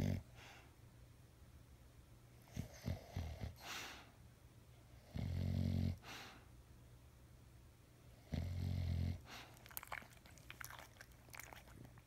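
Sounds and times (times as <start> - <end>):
dog snoring: 0.0 - 0.2, 2.5 - 3.7, 5.0 - 6.1, 8.2 - 9.5
soft mouth smacks: 9.5 - 12.0.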